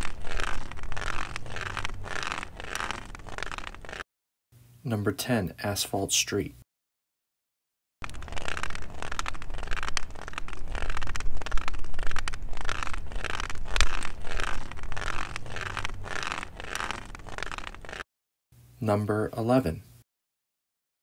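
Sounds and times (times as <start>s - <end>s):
cane tip scraping on asphalt: 0.0s - 4.0s, 8.0s - 18.0s.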